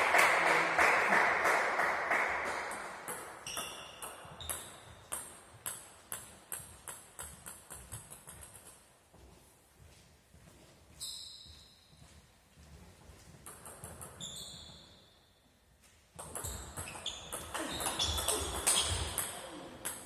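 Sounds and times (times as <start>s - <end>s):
noise echoing in hall: 0.0s - 20.0s
table tennis ball bouncing: 2.7s - 8.9s, 13.4s - 15.0s, 16.2s - 20.0s.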